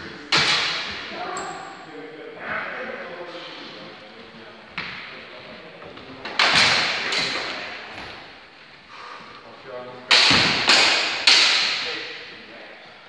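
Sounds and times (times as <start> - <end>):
training swords striking: 0.2 - 1.1, 6.4 - 7.8, 10.1 - 12.2.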